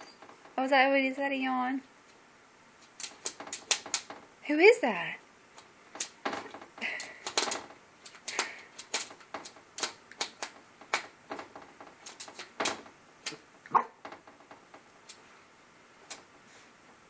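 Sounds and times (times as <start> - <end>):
puppy claws tapping on mirror: 2.8 - 4.3, 5.6 - 13.4.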